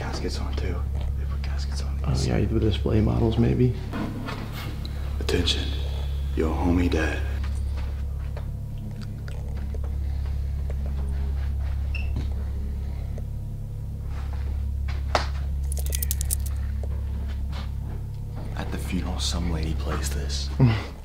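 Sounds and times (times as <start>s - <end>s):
low electrical hum: 0.0s - 21.0s
light clicks and crunches: 15.6s - 16.6s.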